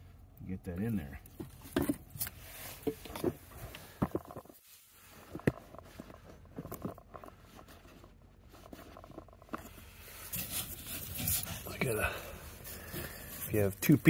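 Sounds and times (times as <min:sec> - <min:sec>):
hands handling plastic pipe: 0:01.2 - 0:11.9.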